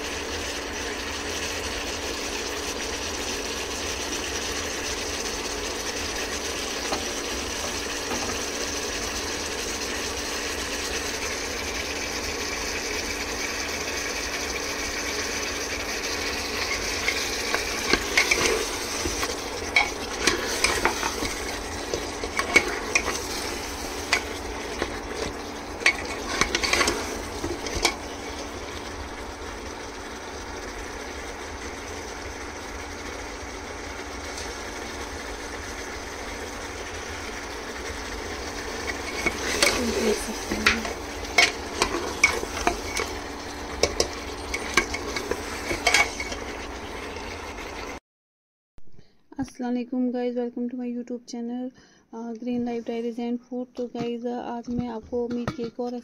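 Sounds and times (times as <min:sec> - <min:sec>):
meat sizzling in oil: 0:00.0 - 0:48.0
metal spoon scraping a pot: 0:16.4 - 0:28.4, 0:38.7 - 0:43.2, 0:43.8 - 0:46.6.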